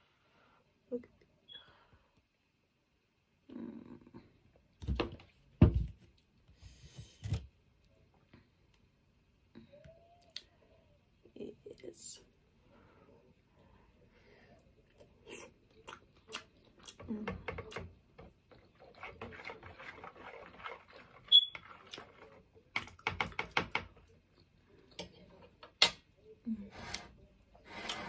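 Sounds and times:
chewing and wet mouth sounds: 14.5s - 23.0s
metal fork scraping plastic tub: 18.8s - 22.5s.

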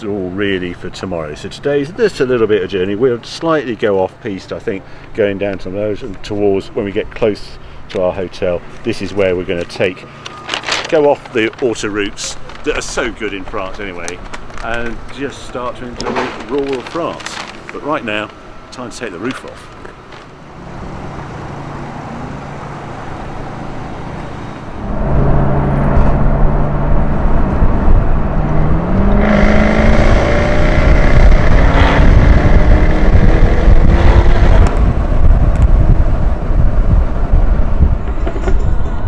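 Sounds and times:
car engine accelerating: 20.4s - 38.0s
wind rushing: 24.6s - 39.0s.

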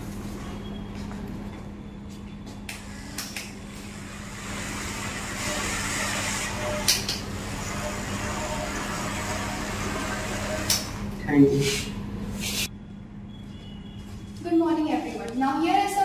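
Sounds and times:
small electric motor whirring: 2.9s - 11.0s.

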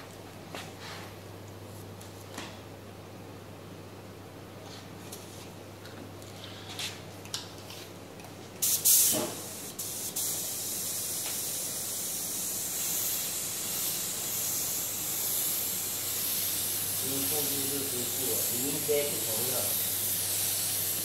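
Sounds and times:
spray gun air hiss: 8.6s - 21.0s.

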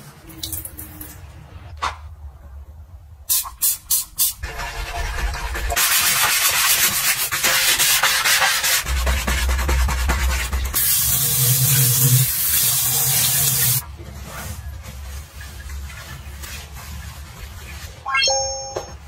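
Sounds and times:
sponge scrubbing a tap: 4.4s - 13.8s
tap running water into basin: 9.0s - 13.8s.

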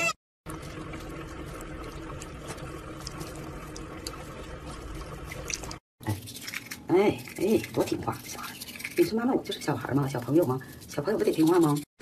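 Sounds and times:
tap water running into sink: 0.5s - 5.8s.

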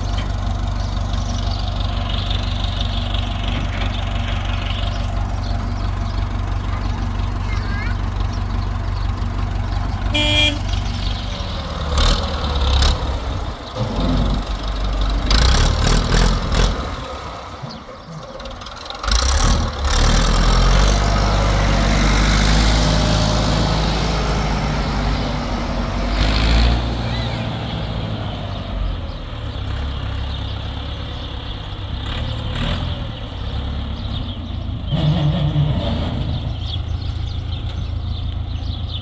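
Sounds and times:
tractor diesel engine running: 0.0s - 39.0s
horn toot: 10.1s - 10.8s.

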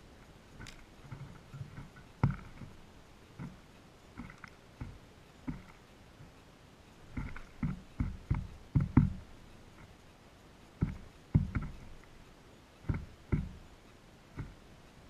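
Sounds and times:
birds pecking at seed: 0.0s - 15.0s.

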